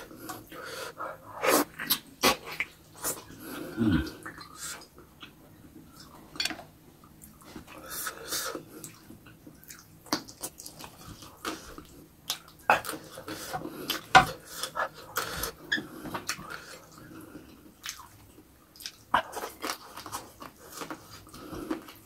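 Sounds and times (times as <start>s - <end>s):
wet chewing and lip-smacking: 8.6s - 22.0s.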